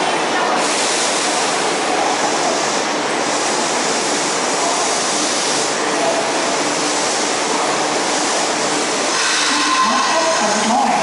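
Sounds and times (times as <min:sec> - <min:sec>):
subway train rushing: 0:00.0 - 0:11.0.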